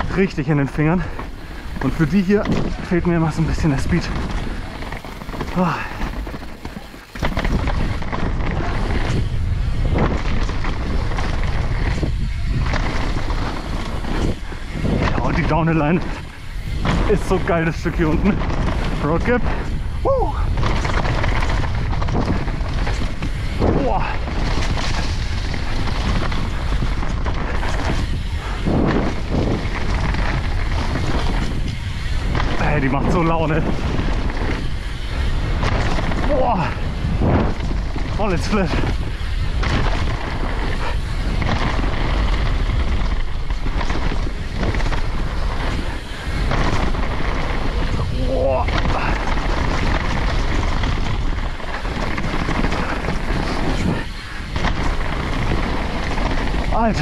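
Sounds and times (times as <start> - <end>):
bike rattles: 0.0 - 57.0
tyre rumble: 0.0 - 57.0
wind rushing over microphone: 0.0 - 57.0.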